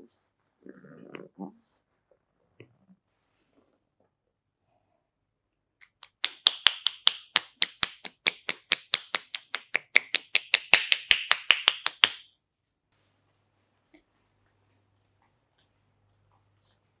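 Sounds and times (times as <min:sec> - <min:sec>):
hands clapping on towel: 0:05.8 - 0:12.3.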